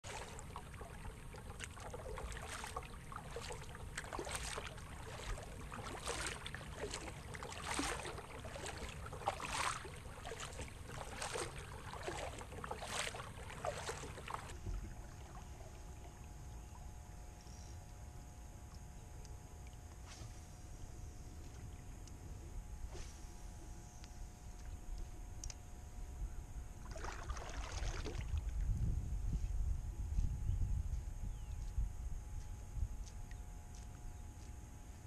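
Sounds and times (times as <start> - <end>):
kayak paddle splashing: 0.0 - 16.8, 26.8 - 28.5
wind rumble on microphone: 27.6 - 34.9.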